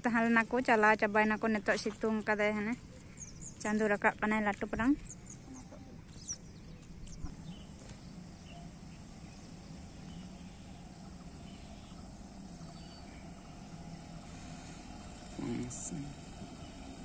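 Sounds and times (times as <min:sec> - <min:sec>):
low hum: 0:00.0 - 0:17.0
background hiss: 0:05.1 - 0:17.0.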